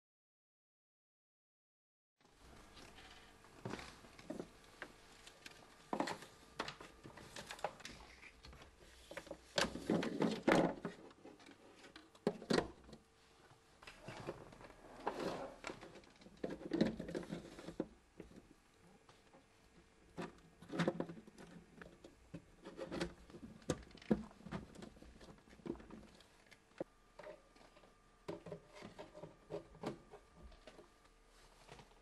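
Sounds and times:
faint steady hum: 0:02.2 - 0:32.0.

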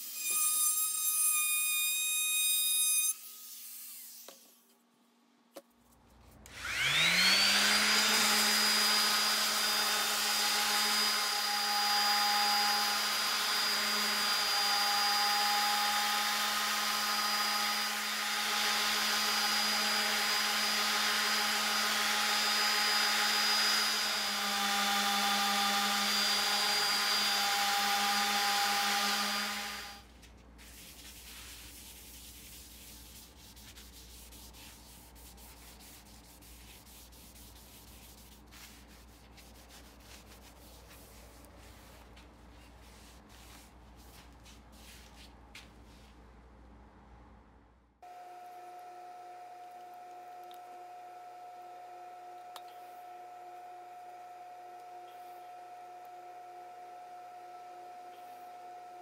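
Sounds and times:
orbital sander whining: 0:06.5 - 0:30.1
cloth rubbing on board: 0:30.0 - 0:46.2.

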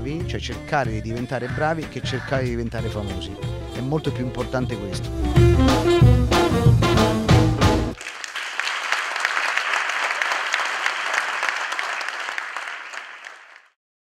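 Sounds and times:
swing music: 0:00.0 - 0:08.0
audience applauding: 0:08.0 - 0:13.8.

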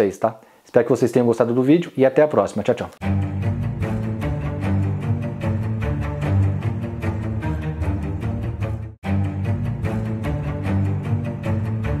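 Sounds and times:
low sustained bass notes: 0:03.0 - 0:12.0
music with steady beat: 0:03.0 - 0:12.0.

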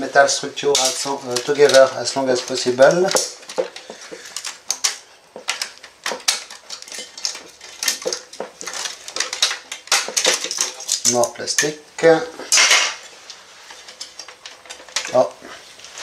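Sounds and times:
plastic cable guides clicking: 0:00.8 - 0:11.7.

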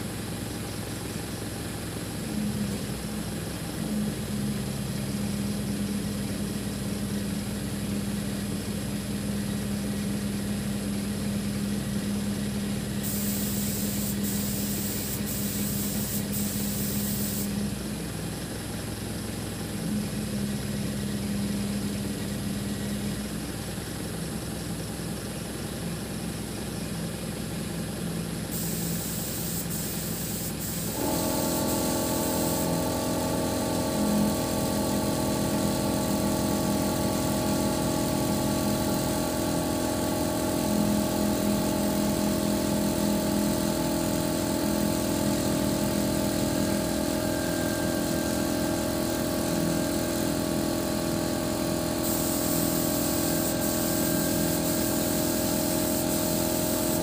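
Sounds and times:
engine running: 0:00.0 - 0:57.0
hydraulic multi-tone whine: 0:28.5 - 0:57.0.

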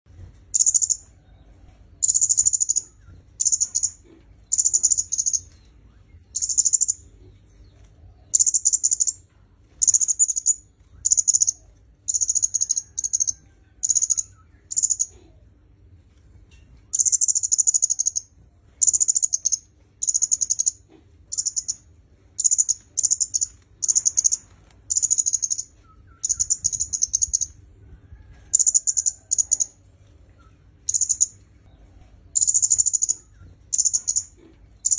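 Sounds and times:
songbird rapid chirping: 0:00.4 - 0:15.9, 0:16.5 - 0:34.9.

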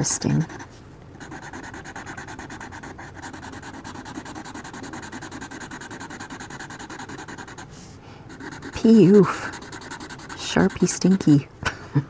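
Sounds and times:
marker scratching on paper: 0:00.0 - 0:07.7, 0:08.3 - 0:11.2.

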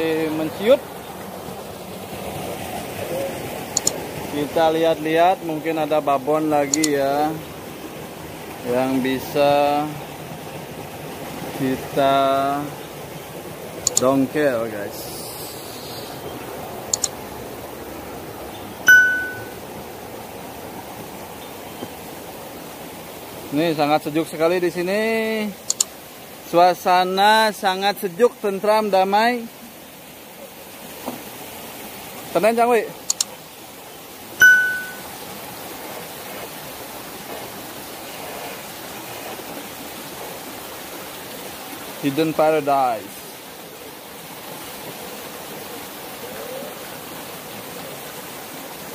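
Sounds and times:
flowing river water: 0:00.0 - 0:48.9
quick clicks: 0:03.8 - 0:04.0, 0:06.7 - 0:06.9, 0:25.7 - 0:25.9, 0:33.1 - 0:33.3
bell ding: 0:18.9 - 0:19.6, 0:34.4 - 0:35.0.

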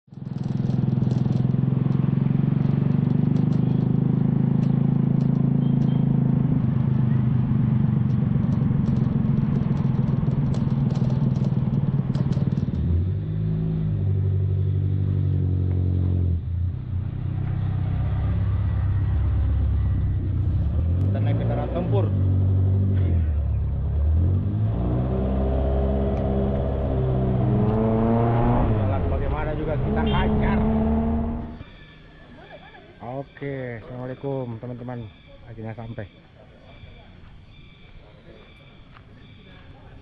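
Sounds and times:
vehicle engine running: 0:00.1 - 0:13.6, 0:24.6 - 0:31.6.

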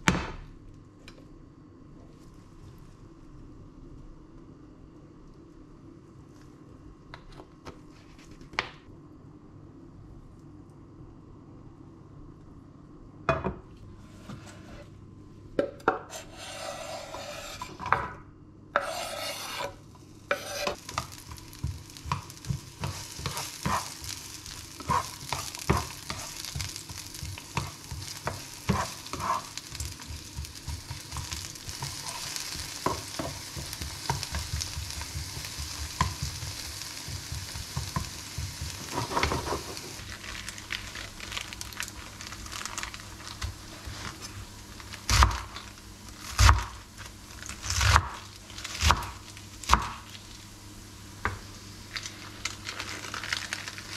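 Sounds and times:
onion sizzling in a pan: 0:16.1 - 0:17.8, 0:18.8 - 0:53.9
spatula scraping a pan: 0:16.1 - 0:17.9, 0:18.8 - 0:21.4, 0:22.0 - 0:24.2, 0:24.8 - 0:36.5, 0:37.2 - 0:40.0.

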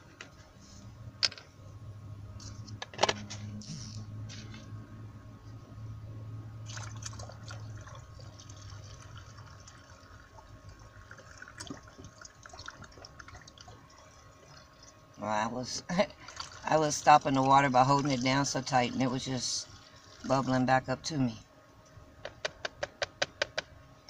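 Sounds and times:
water gurgling into a bottle: 0:06.7 - 0:15.0.

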